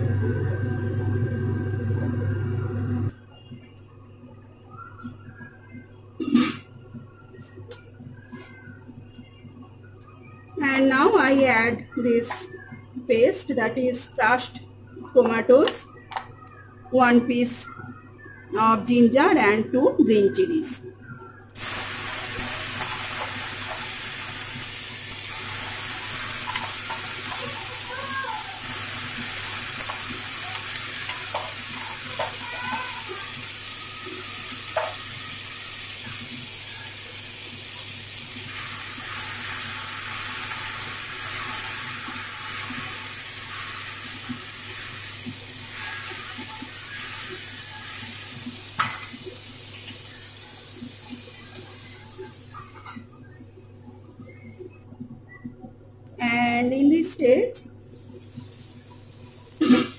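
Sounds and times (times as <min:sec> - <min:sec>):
paste sizzling in hot oil: 0:21.6 - 0:52.8.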